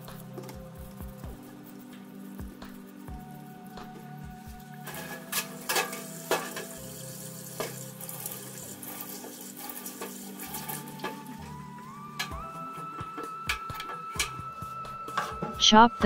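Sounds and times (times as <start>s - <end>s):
tap water running into sink: 4.3s - 14.3s.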